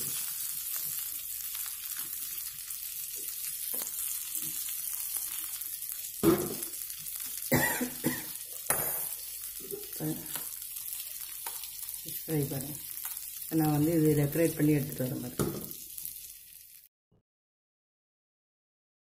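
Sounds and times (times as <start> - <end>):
fish sizzling in oil: 0.0 - 16.9.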